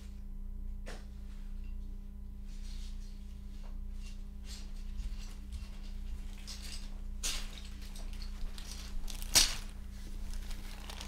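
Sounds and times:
steady low hum: 0:00.0 - 0:11.0
rustling and handling at desk: 0:02.4 - 0:11.0.

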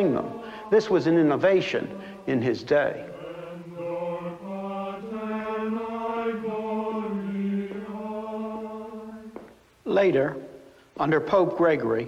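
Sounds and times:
male plainchant: 0:00.0 - 0:03.1, 0:09.8 - 0:12.0.

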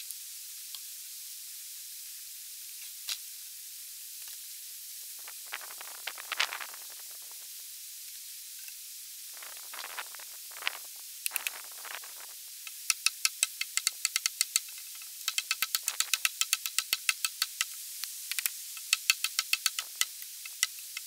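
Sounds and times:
rustling: 0:05.2 - 0:07.6, 0:09.3 - 0:12.4.

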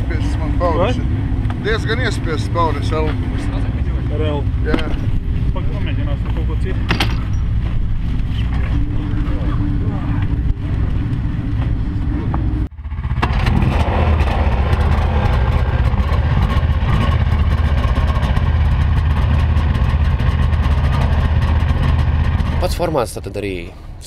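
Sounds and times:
snowmobile engines idling: 0:00.0 - 0:24.0
vehicle engine idling: 0:00.0 - 0:24.0.

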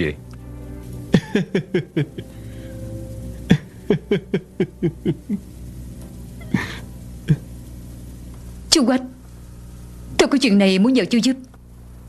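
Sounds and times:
quiet background music: 0:00.0 - 0:11.6
man laughing softly: 0:01.1 - 0:02.3, 0:03.5 - 0:05.5.

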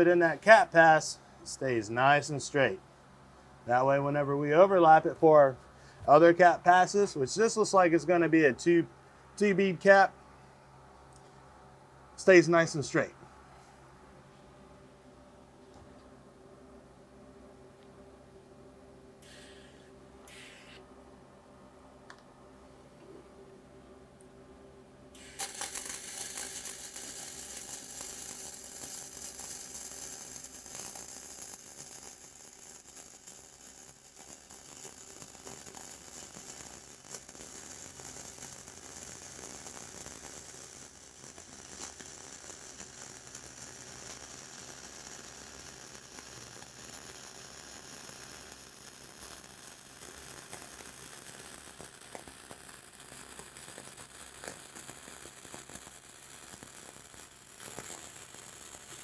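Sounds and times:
welding arc hissing and popping: 0:00.0 - 0:02.6, 0:19.2 - 0:20.8, 0:25.1 - 0:59.0.

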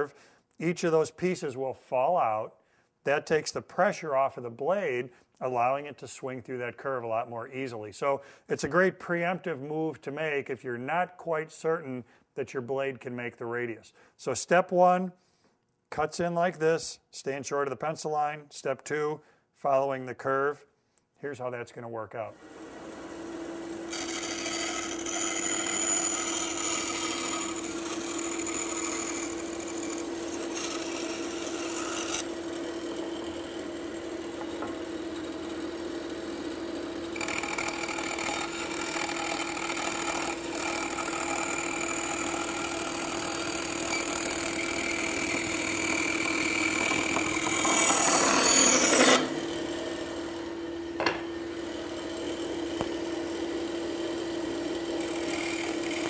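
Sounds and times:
bandsaw motor hum: 0:22.4 - 0:56.0.

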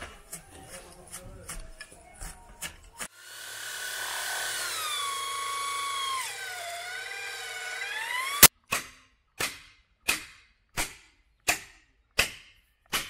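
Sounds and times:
electric drill boring into bamboo: 0:03.0 - 0:08.5.

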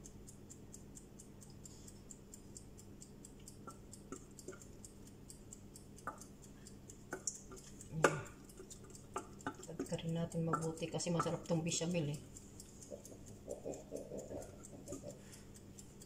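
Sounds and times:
fast high ticking: 0:00.0 - 0:16.0.

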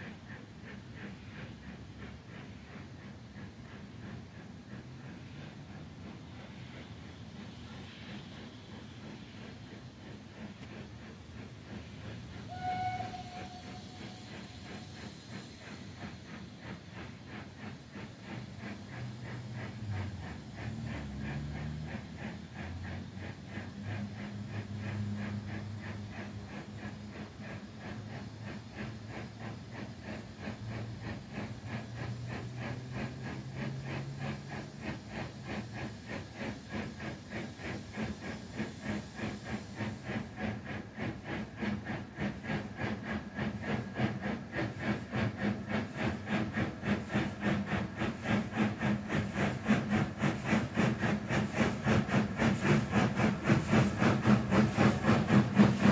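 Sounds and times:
steam locomotive chuffing: 0:00.0 - 0:55.9
steam whistle: 0:12.5 - 0:14.3.

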